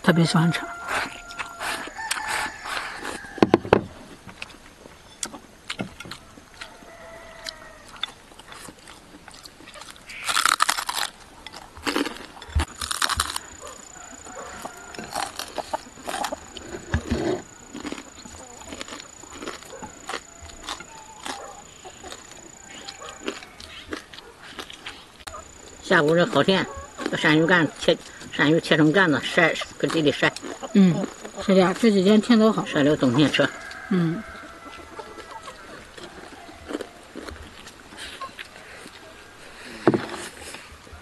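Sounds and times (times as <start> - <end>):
chewing and mouth noises: 4.4 - 32.8, 33.4 - 39.7
chickens clucking: 11.4 - 41.0
person humming: 33.9 - 34.3.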